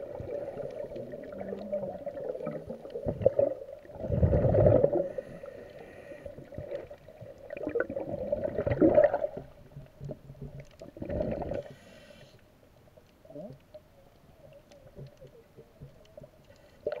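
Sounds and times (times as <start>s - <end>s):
rumbling bubble bursts: 0.0s - 5.2s, 6.5s - 9.6s, 10.8s - 11.6s
faint steady hum: 0.0s - 17.0s
faint clicks: 0.3s - 3.9s, 9.6s - 17.0s
regulator inhale hiss: 5.0s - 6.6s, 11.6s - 12.5s.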